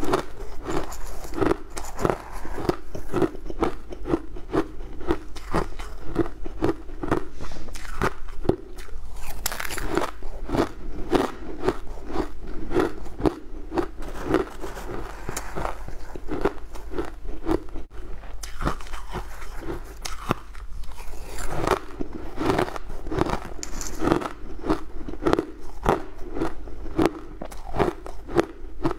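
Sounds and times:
ice crunching while chewed: 0.0s - 28.9s
metal spoon scraping ice: 0.4s - 3.6s, 22.6s - 24.2s.

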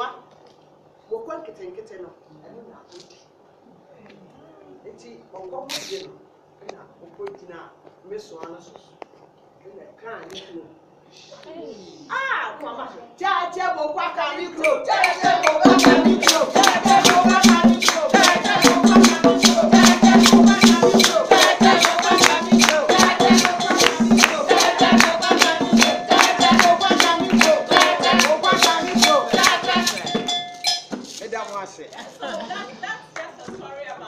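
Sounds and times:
voices singing: 12.7s - 30.5s
shaken rattle beat: 14.6s - 32.3s.

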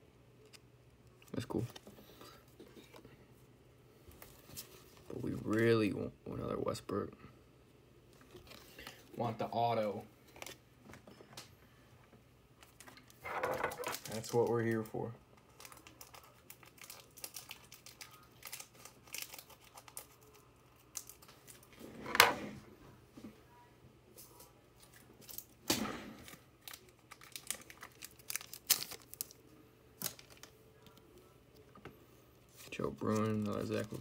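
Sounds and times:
cards clicking and rustling: 12.6s - 14.8s, 30.0s - 31.0s, 32.5s - 34.0s
foil wrapper crinkling and tearing: 13.7s - 21.7s, 26.2s - 31.0s, 32.5s - 34.0s.

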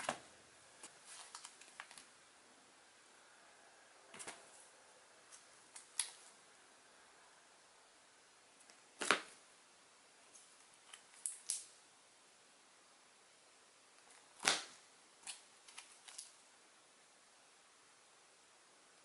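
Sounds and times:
plastic-bagged comics handled: 0.9s - 2.1s.

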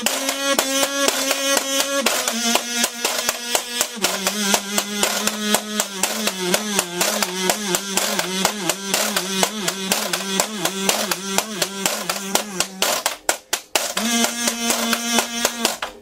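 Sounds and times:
kazoo buzzing: 0.0s - 16.0s.

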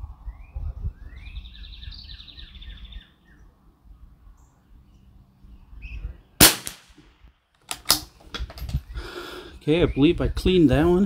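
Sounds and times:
songbird singing: 0.0s - 6.5s, 8.7s - 11.0s.

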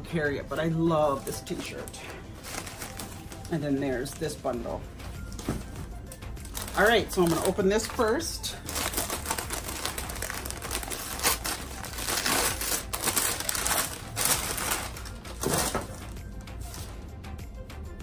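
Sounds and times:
paper wrapping crinkling: 1.1s - 4.4s, 6.4s - 16.9s.

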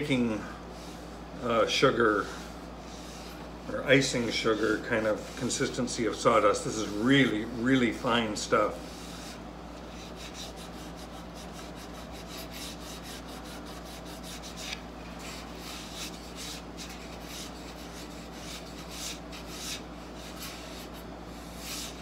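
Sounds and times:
rubbing strokes on wood: 8.8s - 22.0s.

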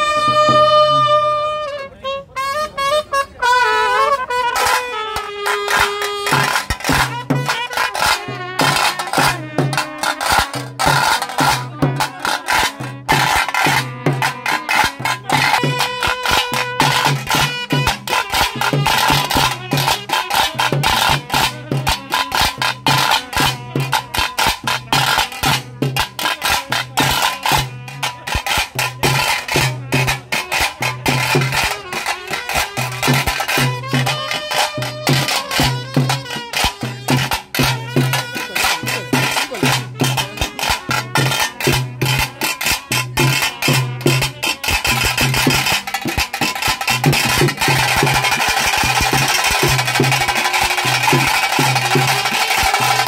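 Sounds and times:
fast dense drumming: 43.1s - 53.0s.

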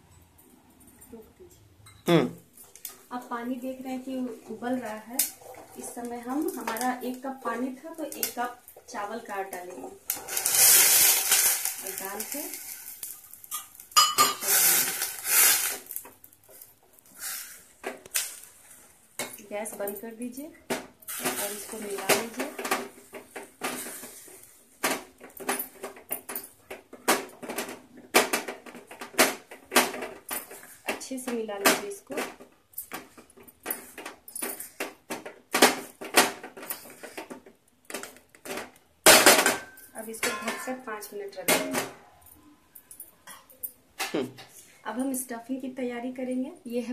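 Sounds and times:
metal utensil clinking on pot: 9.2s - 16.0s, 37.9s - 41.9s
rough scraping in pot: 10.0s - 16.0s.

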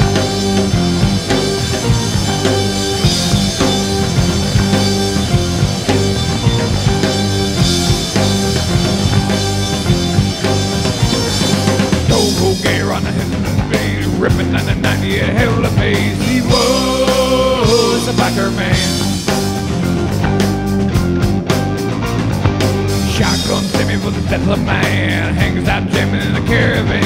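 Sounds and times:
lead guitar bending notes: 0.0s - 13.8s
rock band playing: 0.0s - 27.0s.

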